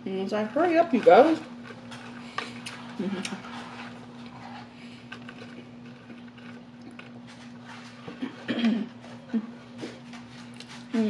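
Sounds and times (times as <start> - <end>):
person chewing: 1.4 - 11.0.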